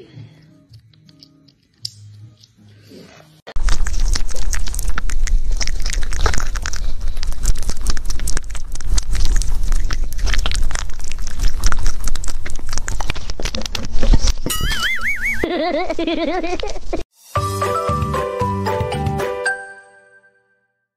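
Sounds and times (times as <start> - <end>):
rabbit chewing: 1.0 - 14.5.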